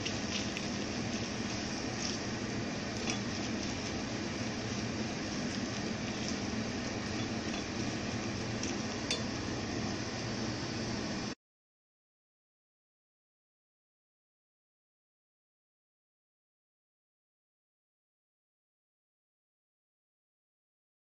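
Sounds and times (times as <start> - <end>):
vegetables sizzling in a pot: 0.0 - 11.3.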